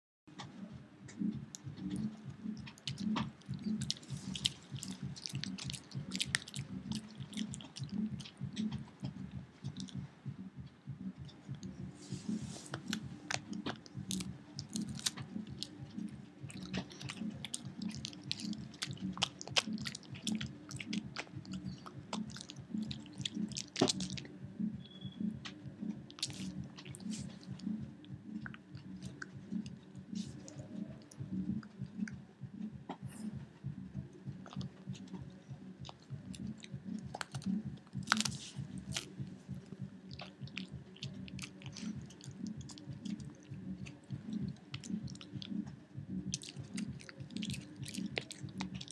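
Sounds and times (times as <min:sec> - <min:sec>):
dog chewing rawhide: 0:02.7 - 0:08.8, 0:12.4 - 0:24.3, 0:26.1 - 0:27.7, 0:35.8 - 0:39.2, 0:40.1 - 0:45.6, 0:46.3 - 0:48.9.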